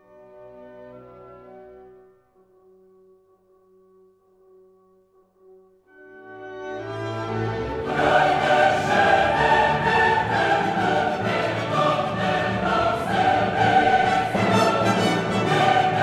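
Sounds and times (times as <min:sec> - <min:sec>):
choir singing with orchestra: 0:06.7 - 0:16.0.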